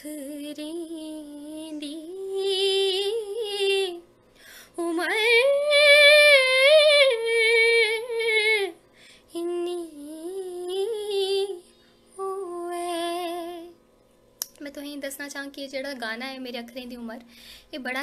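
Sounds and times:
woman singing unaccompanied: 0.0 - 4.1, 4.7 - 13.8.

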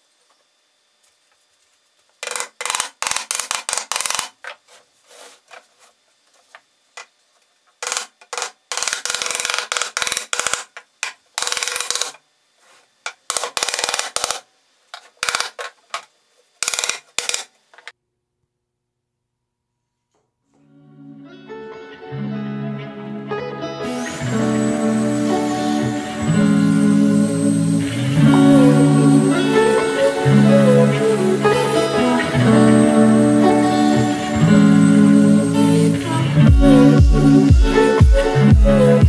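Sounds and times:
hand sanding wood: 3.0 - 6.0.

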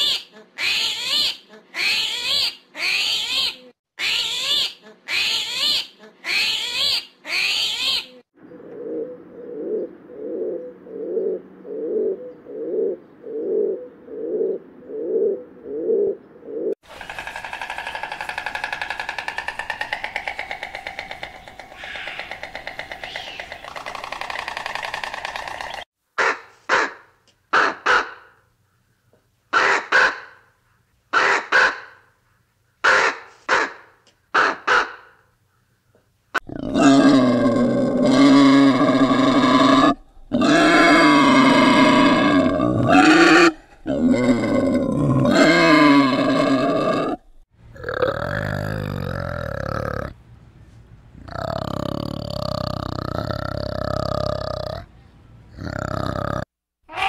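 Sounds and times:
rapid rattling: 16.8 - 25.9
crow cawing: 21.4 - 23.6
boar grunting: 36.4 - 50.2, 51.2 - 54.9, 55.5 - 56.5.

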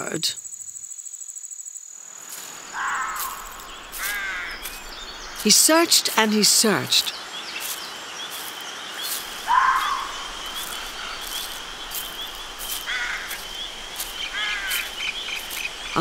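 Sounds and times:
high chirping insects: 0.0 - 16.0
gliding bird call: 9.0 - 16.0.

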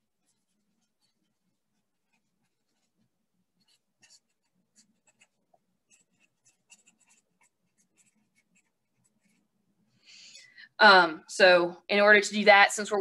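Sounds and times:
marker writing on paper: 0.1 - 9.5.

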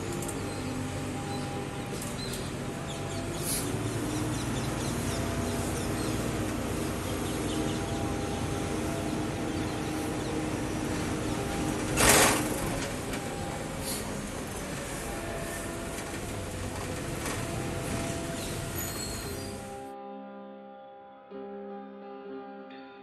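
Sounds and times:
bus engine drone: 0.0 - 19.9
road rumble: 0.0 - 19.9
loud air hiss: 2.0 - 15.7.

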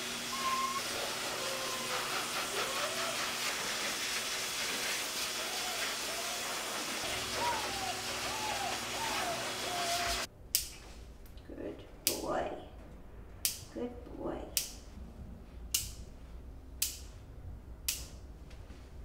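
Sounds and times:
pet dryer blowing air: 0.0 - 10.3
puppy whimpering: 0.3 - 3.3, 5.4 - 10.3.

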